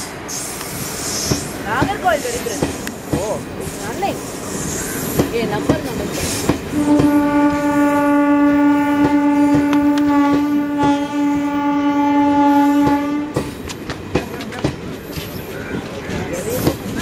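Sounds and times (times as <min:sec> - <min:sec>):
train wheels clacking on rail joints: 0:00.0 - 0:11.6, 0:12.6 - 0:17.0
train horn long note: 0:06.7 - 0:13.5.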